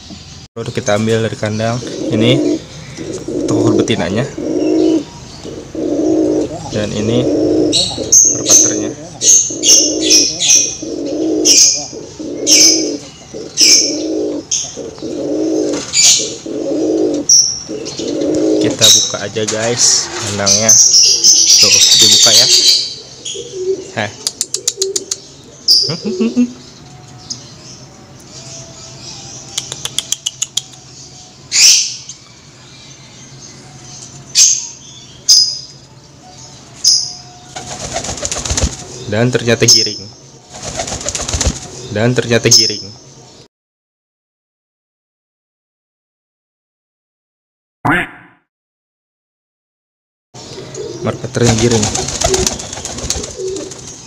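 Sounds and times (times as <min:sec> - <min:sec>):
pigeon cooing: 0:01.8 - 0:19.1, 0:22.1 - 0:26.6, 0:28.3 - 0:30.9, 0:50.5 - 0:53.8
sharp clicks: 0:24.2 - 0:25.2, 0:29.6 - 0:30.9
doves flapping wings: 0:37.5 - 0:39.0, 0:40.5 - 0:41.8, 0:51.4 - 0:54.0.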